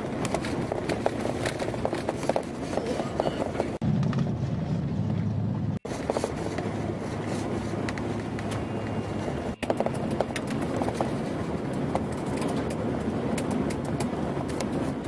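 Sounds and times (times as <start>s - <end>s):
gravel clicks and rattles: 0.0s - 4.3s, 5.9s - 15.0s.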